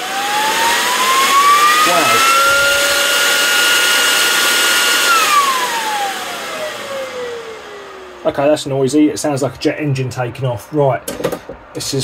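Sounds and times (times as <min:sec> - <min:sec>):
rushing air: 0:00.0 - 0:09.1
cooling fan whine: 0:00.0 - 0:12.0.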